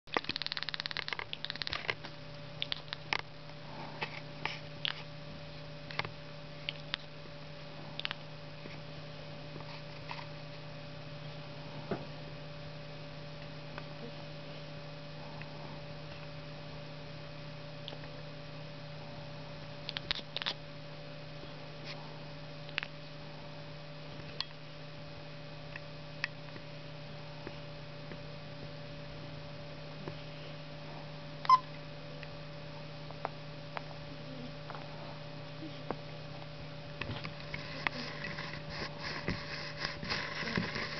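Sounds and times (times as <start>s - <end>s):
low electrical hum: 0.1s - 40.9s
cat squeaks and clicks: 0.2s - 1.8s, 31.4s - 31.7s.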